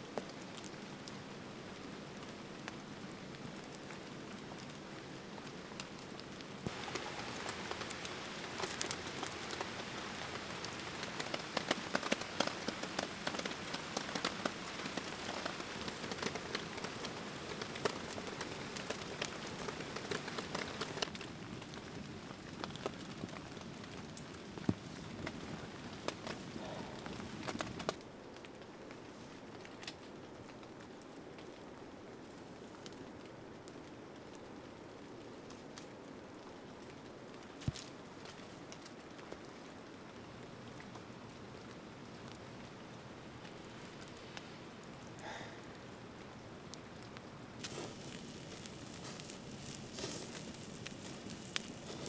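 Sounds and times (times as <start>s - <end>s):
steady hiss: 0.0s - 28.3s, 40.0s - 52.0s
campfire crackling and popping: 0.0s - 52.0s.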